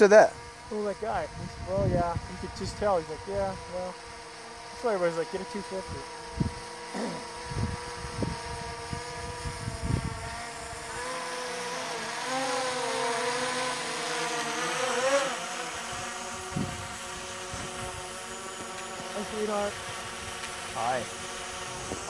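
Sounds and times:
drone propellers buzzing: 0.0s - 22.0s
wind thumps on microphone: 16.5s - 16.9s.

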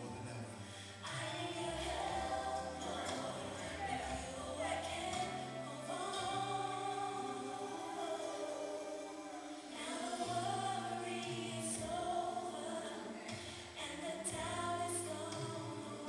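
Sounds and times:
choir singing gospel song: 0.0s - 16.0s.

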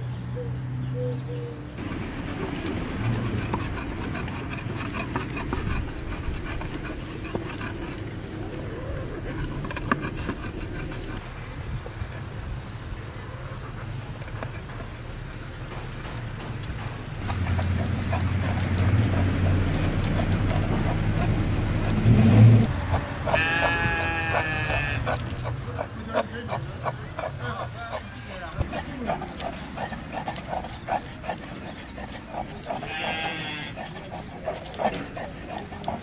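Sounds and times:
engine hum: 0.0s - 36.0s
animal bleat: 23.3s - 25.2s, 32.8s - 34.0s.

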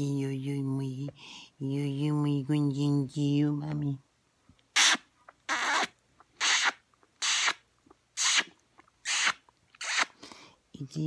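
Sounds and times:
close noisy breathing or sniffs: 9.1s - 10.6s.

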